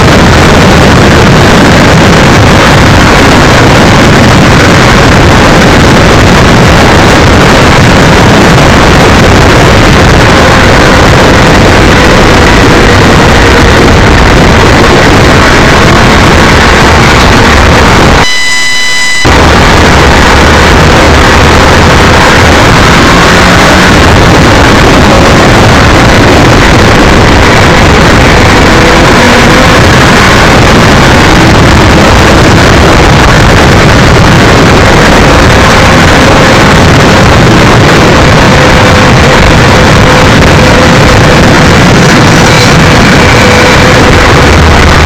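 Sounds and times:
wind and motorcycle road noise: 0.0 - 45.0
electronic beep: 18.2 - 19.4.

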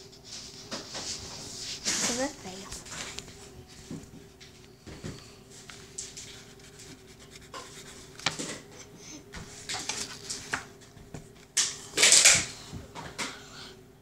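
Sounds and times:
fingers rubbing paper: 6.1 - 8.2.

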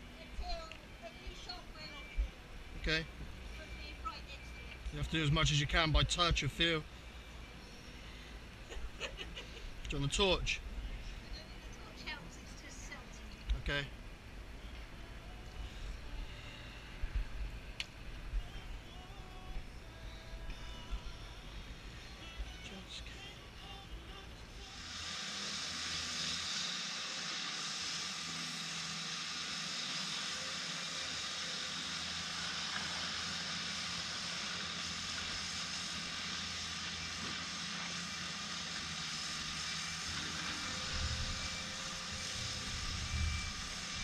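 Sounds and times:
pump hum: 13.9 - 44.0
pressure washer spray hiss: 24.6 - 44.0.

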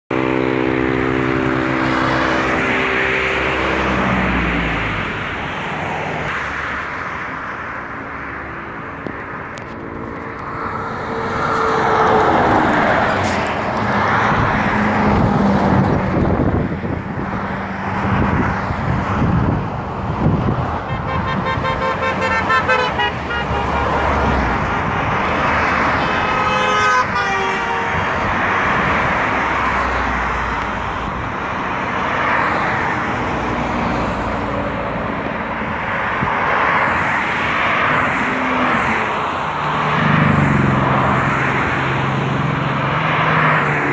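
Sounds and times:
car engine drone: 0.1 - 43.9
traffic rushing past: 0.1 - 43.9
car horn blast: 20.9 - 24.0, 26.2 - 28.2.

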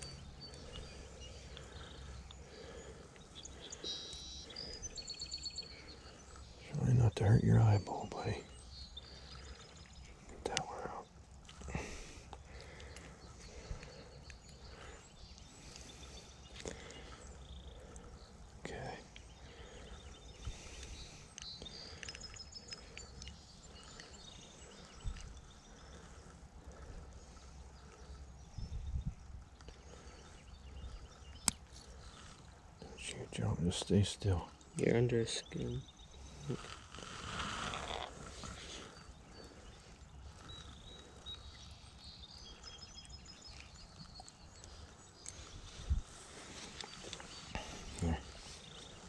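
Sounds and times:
faint bird chirps: 0.0 - 49.0
rustle: 20.4 - 49.0
wind rumble on microphone: 28.4 - 29.6, 45.5 - 46.2.

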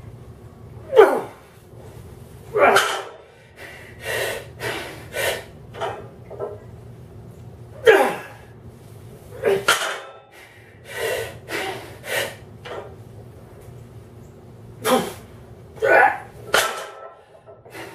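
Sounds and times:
man breathing hard: 3.2 - 5.6, 10.3 - 12.5, 17.1 - 17.9
man grunting exhales: 7.8 - 8.5, 14.8 - 16.3.

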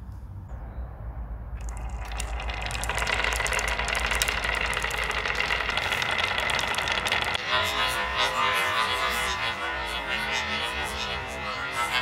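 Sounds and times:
marbles rolling in wooden groove: 1.6 - 12.0.

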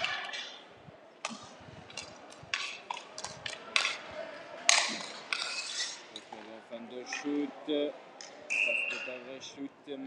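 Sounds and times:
hockey sticks clacking: 0.0 - 0.6, 1.2 - 7.4
scraping noise: 4.9 - 6.2.

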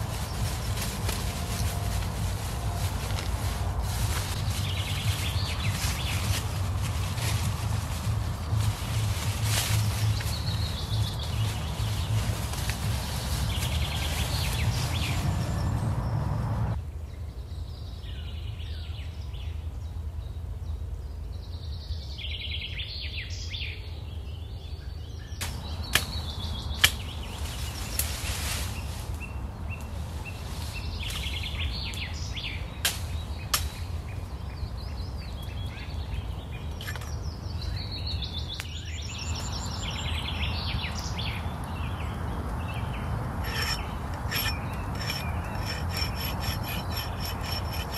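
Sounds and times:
low rumble: 0.0 - 16.8
small birds chirping: 4.2 - 16.7, 24.9 - 47.9.

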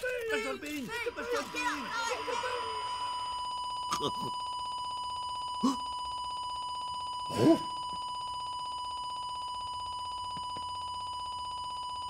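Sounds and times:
high electronic trilling beep: 0.9 - 5.8.

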